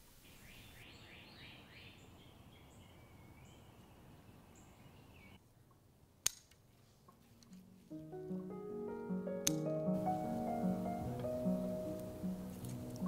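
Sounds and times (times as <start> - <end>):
outdoor hiss: 0.0 - 5.3, 6.0 - 13.0
birds calling: 0.2 - 5.4
scissors snipping stem: 9.4 - 9.7.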